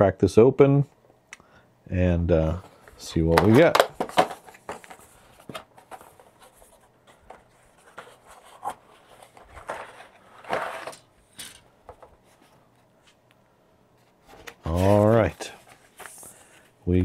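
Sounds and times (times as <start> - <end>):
cardboard and plastic rustling: 2.6 - 11.1, 14.0 - 17.0.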